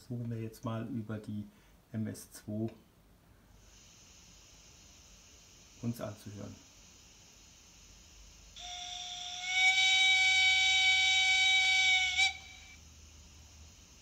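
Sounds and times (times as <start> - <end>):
steam whistle blast: 8.6 - 13.1.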